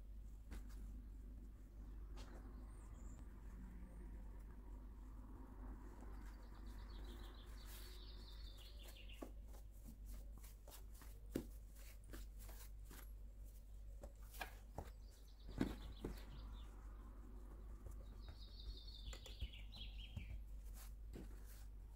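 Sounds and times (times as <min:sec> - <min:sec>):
hands patting dough: 0:08.4 - 0:16.5, 0:17.4 - 0:21.9.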